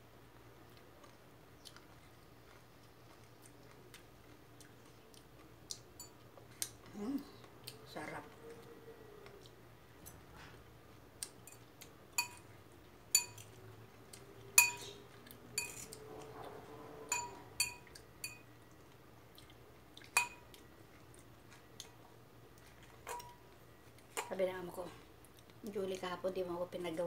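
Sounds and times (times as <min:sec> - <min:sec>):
cutlery clinking in bowl: 0:11.4 - 0:12.5, 0:13.1 - 0:13.6, 0:14.6 - 0:15.0, 0:15.6 - 0:16.0, 0:17.1 - 0:18.5, 0:20.1 - 0:20.6, 0:23.0 - 0:23.4.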